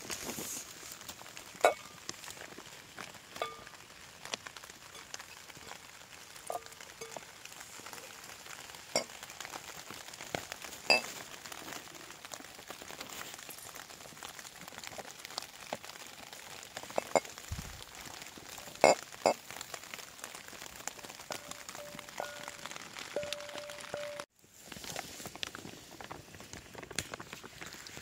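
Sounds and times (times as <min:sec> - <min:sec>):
faint steady crackle: 0:00.0 - 0:28.0
bowl clinking: 0:21.3 - 0:24.3.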